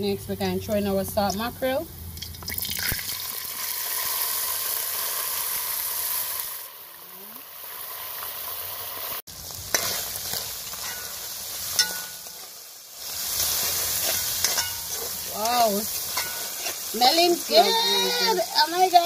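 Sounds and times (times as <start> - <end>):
fish sizzling in hot oil: 2.2 - 19.0
metal spoon scraping pot: 14.0 - 18.6.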